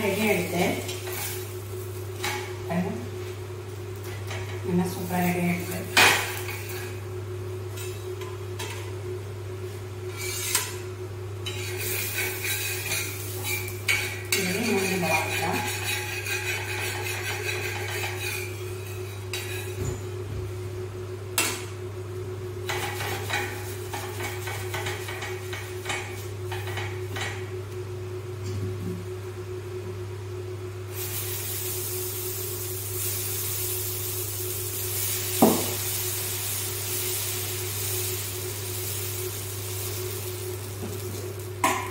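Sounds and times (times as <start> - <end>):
light sizzling: 0.0 - 8.9, 9.7 - 19.8, 30.9 - 41.9
steady low hum: 0.0 - 41.9
steel spatula scraping griddle: 10.1 - 10.8, 11.4 - 19.8.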